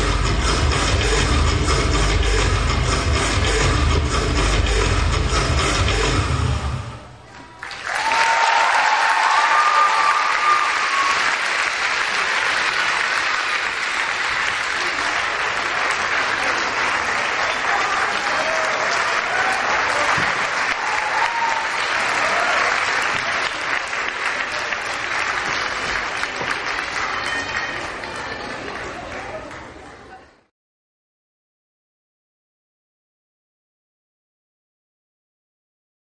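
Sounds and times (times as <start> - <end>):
audience applauding: 7.5 - 29.6.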